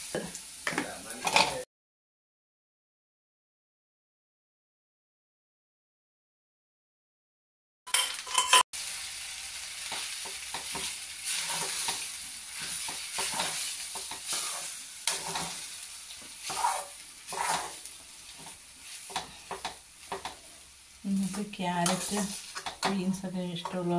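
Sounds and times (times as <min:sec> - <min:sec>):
frying hiss: 0:00.0 - 0:01.6, 0:08.0 - 0:23.9
metal spoon scraping a pan: 0:01.1 - 0:01.6, 0:07.9 - 0:08.6, 0:09.9 - 0:20.5, 0:21.2 - 0:23.9.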